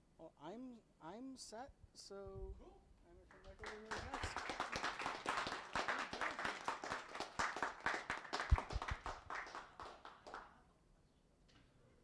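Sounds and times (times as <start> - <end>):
audience clapping: 3.3 - 10.5.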